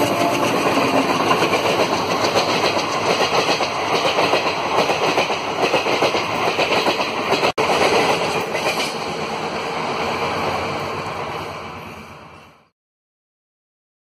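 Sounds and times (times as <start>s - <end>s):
train wheels clattering over rail joints: 0.0s - 9.2s.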